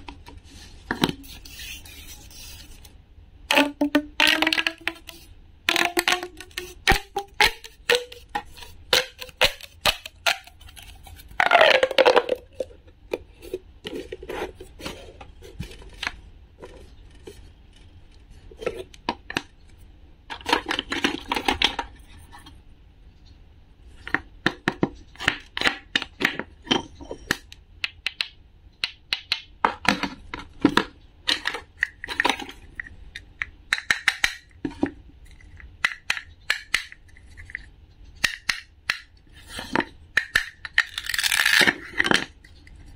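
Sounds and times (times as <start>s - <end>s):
plastic pop tube whirring: 3.5s - 10.7s, 11.4s - 13.2s
plastic toy pieces handled: 29.9s - 42.9s.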